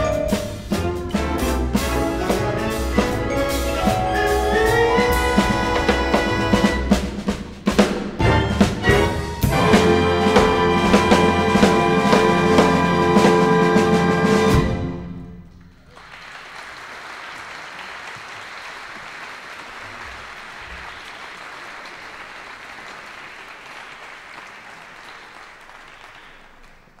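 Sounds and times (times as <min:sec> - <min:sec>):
audience applause: 0:15.8 - 0:27.0.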